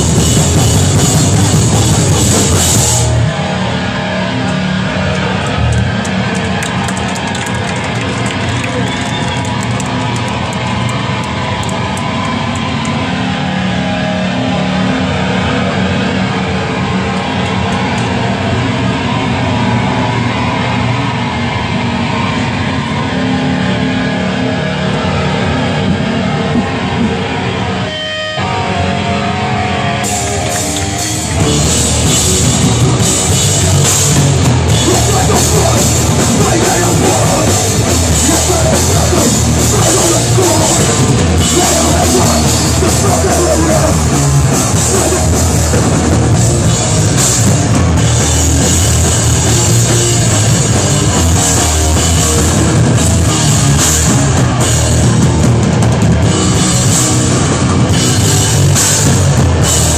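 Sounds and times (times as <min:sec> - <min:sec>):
drums: 0:00.0 - 0:59.9
electric guitar: 0:00.0 - 0:59.9
live hardcore band playing: 0:00.0 - 0:59.9.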